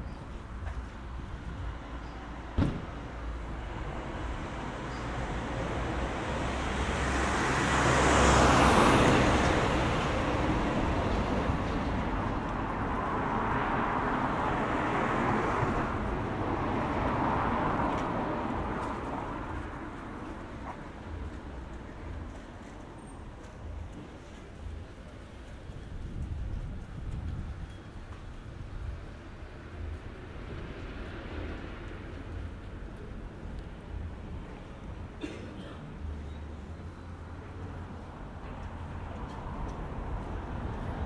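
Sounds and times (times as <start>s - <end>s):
cars passing on street: 0.0s - 41.0s
sharp knock: 2.6s - 2.9s.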